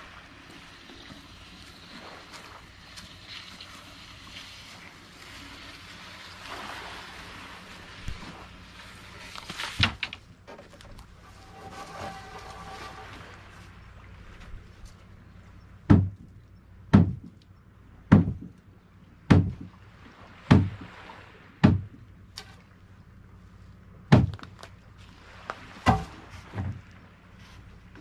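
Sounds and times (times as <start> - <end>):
boat thudding against wood: 9.4 - 13.6, 15.8 - 17.4, 18.1 - 18.6, 19.3 - 19.8, 20.5 - 20.9, 21.6 - 22.6, 24.1 - 24.6, 25.6 - 26.9.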